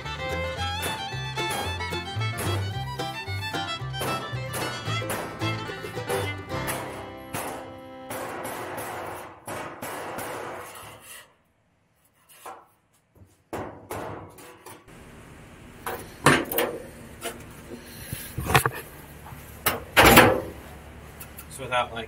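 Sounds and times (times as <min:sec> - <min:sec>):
music track: 0:00.0 - 0:08.8
knocks on sheet metal: 0:00.3 - 0:11.0, 0:13.5 - 0:14.6.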